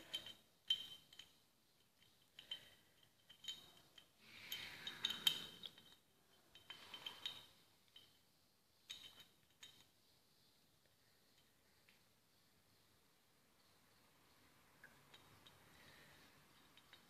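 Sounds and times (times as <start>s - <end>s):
small metal parts clicking: 0.0s - 8.2s.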